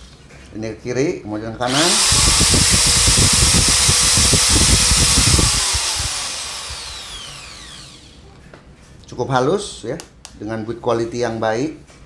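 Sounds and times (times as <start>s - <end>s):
impact drill running and winding down: 1.7s - 8.2s.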